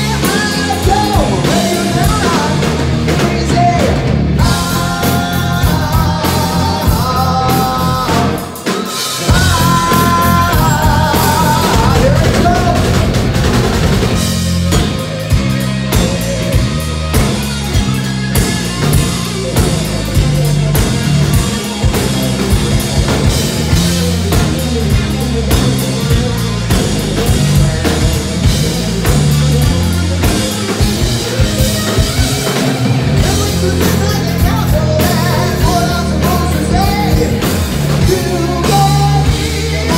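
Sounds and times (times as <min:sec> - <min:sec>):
person singing: 0:00.0 - 0:13.3, 0:27.9 - 0:39.9
lead electric guitar: 0:00.0 - 0:39.9
live rock band playing: 0:00.0 - 0:39.9.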